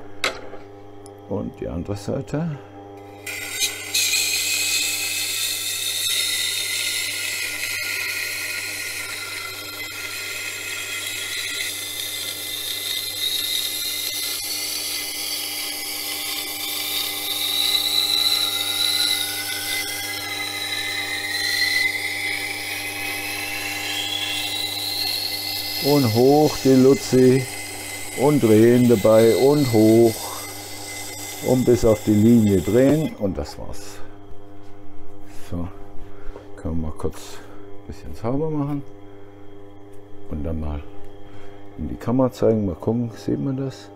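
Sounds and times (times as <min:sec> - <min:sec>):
grinder motor hum: 0:00.0 - 0:43.9
steel grinding on wet wheel: 0:03.1 - 0:33.2.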